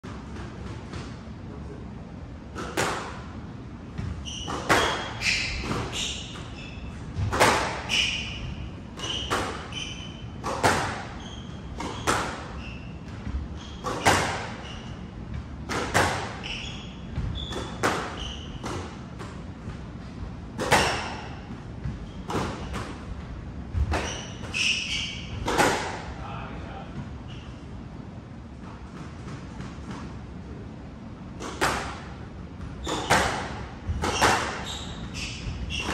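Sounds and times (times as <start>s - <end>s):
squash ball hitting rackets and walls: 2.4s - 26.2s, 28.4s - 30.4s, 31.2s - 35.9s
sneakers squeaking on wooden floor: 3.9s - 26.2s, 27.0s - 27.7s, 31.4s - 35.9s.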